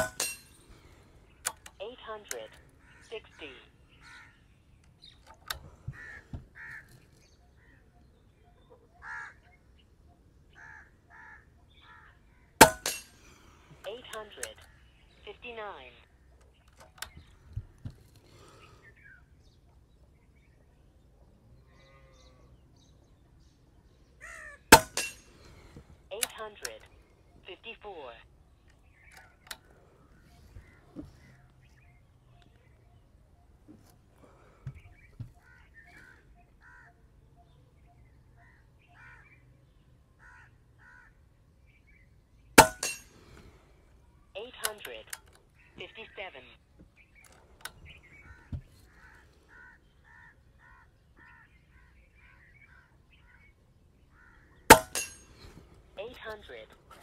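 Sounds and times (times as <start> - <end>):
handling clicks and knocks: 0.0 - 0.8
crows cawing: 3.8 - 4.7, 5.5 - 7.9, 8.9 - 9.7, 10.5 - 12.8, 24.2 - 25.7, 35.4 - 37.1, 38.4 - 39.4, 40.2 - 41.3, 48.2 - 53.4, 54.1 - 54.9.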